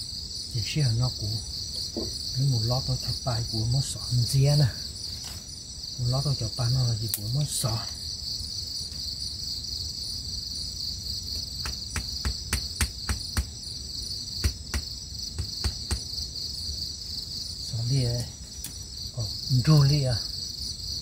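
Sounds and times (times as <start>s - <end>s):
crickets chirring: 0.0s - 21.0s
knife tapping wooden stake: 14.4s - 16.1s.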